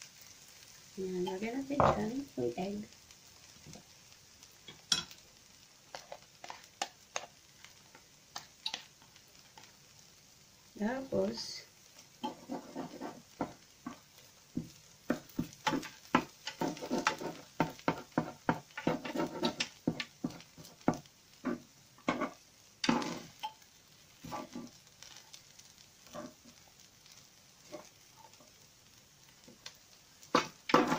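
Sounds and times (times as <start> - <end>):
light sizzle: 0.0 - 30.9
spatula scraping frying pan: 5.9 - 9.7, 12.1 - 26.6, 27.6 - 28.6, 30.2 - 30.9.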